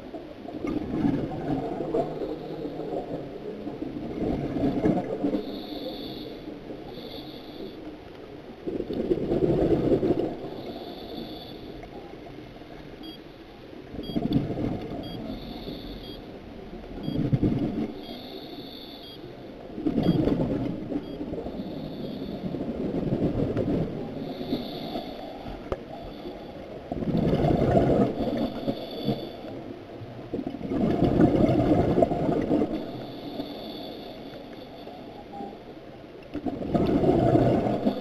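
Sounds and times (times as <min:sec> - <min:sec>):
regulator hiss on inhale: 0:05.4 - 0:07.9, 0:10.4 - 0:12.0, 0:15.3 - 0:16.0, 0:18.0 - 0:19.3, 0:21.5 - 0:22.6, 0:24.1 - 0:26.5, 0:32.8 - 0:35.0.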